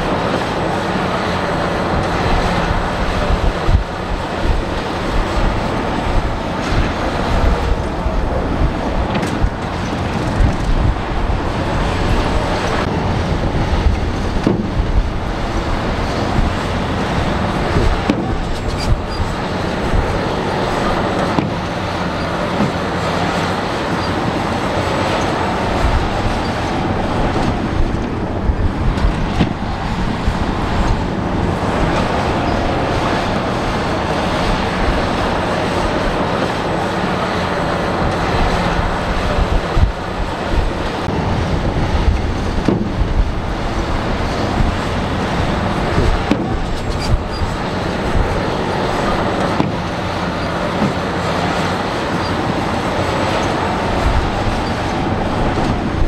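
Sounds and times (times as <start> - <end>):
diesel engines running: 0.0 - 56.0.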